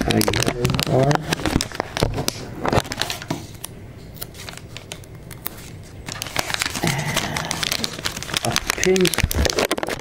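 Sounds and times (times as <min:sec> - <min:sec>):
paper sticker sheet crinkling: 0:00.0 - 0:10.0.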